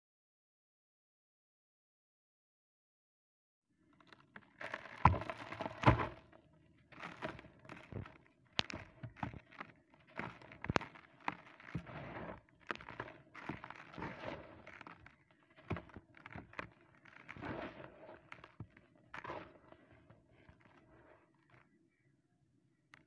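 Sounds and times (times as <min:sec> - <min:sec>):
concrete chunks crunching in hands: 0:03.9 - 0:20.8
gravel pouring into plastic bucket: 0:04.0 - 0:19.7.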